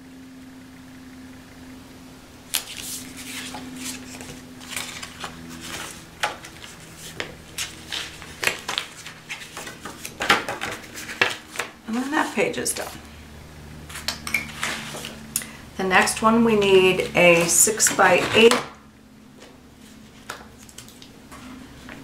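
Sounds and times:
paper rustling and sliding: 2.5s - 13.0s, 13.9s - 15.2s.

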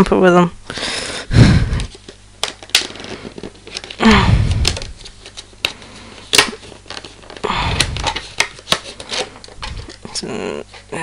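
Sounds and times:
plastic packaging crackling: 1.9s - 10.0s.

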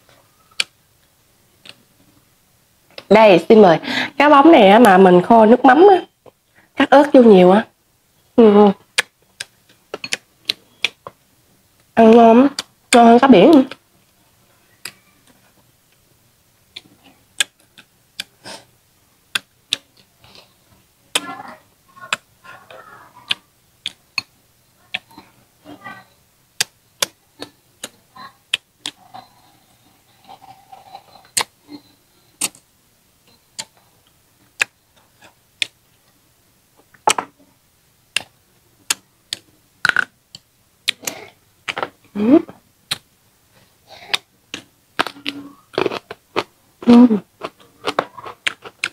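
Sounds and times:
wet chewing clicks and smacks: 8.9s - 11.2s, 16.7s - 18.3s, 47.4s - 48.9s
muffled mouth noises: 20.2s - 24.0s, 27.3s - 32.6s, 43.6s - 48.9s.

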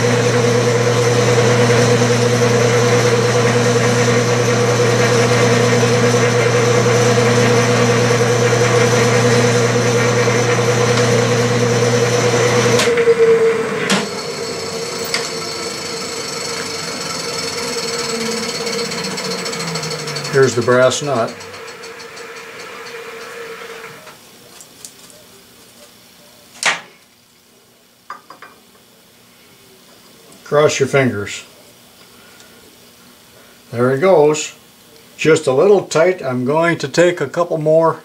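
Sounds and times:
metal lathe humming: 0.0s - 24.0s.

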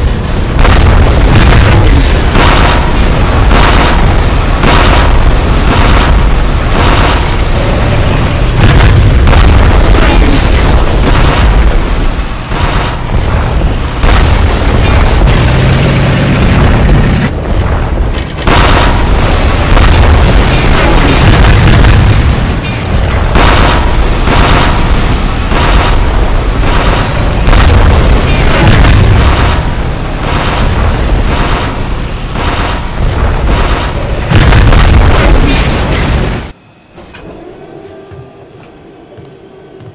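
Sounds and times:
deep explosion booms: 0.0s - 36.5s
tank cannon fire: 0.0s - 36.5s.

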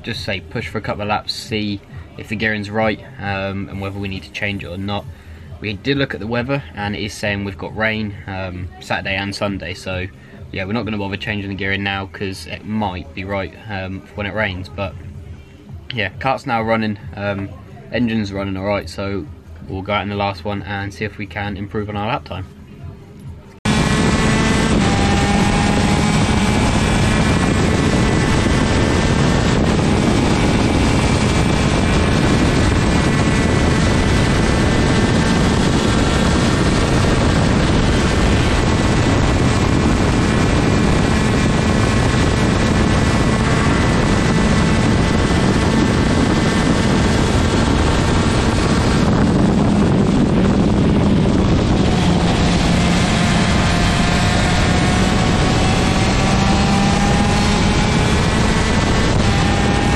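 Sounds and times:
kart engine at high revs: 23.6s - 59.9s.

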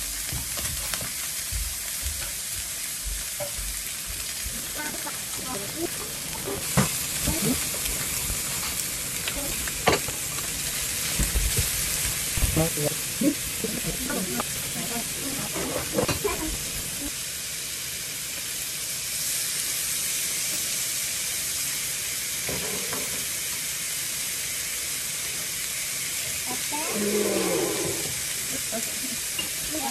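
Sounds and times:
meat sizzling on griddle: 0.0s - 29.9s.

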